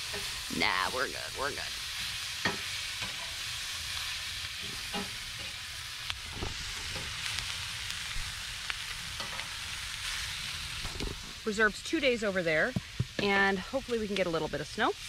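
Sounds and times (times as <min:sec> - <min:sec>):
spatula scraping a pan: 0:00.0 - 0:07.5, 0:09.0 - 0:10.4
vegetables sizzling in a skillet: 0:00.0 - 0:15.0.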